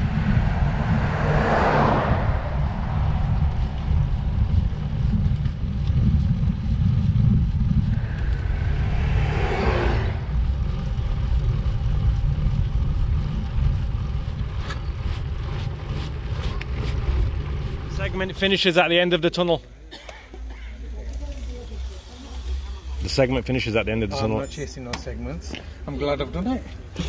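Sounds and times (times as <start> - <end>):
wind buffeting microphone: 0.0 - 15.6.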